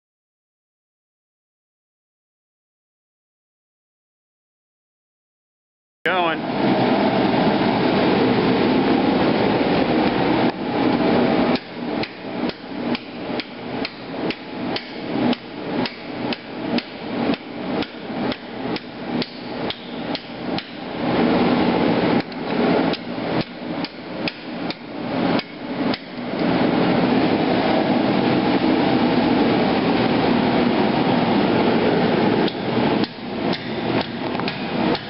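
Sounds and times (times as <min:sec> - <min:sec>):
steady roaring noise: 0:06.1 - 0:35.0
hammer striking hot steel: 0:11.5 - 0:20.9, 0:22.2 - 0:26.4, 0:32.4 - 0:35.0.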